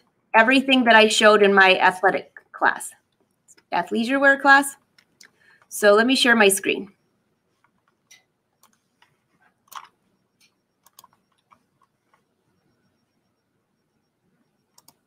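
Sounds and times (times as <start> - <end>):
computer mouse and keyboard clicks: 7.6 - 12.3, 14.7 - 15.0.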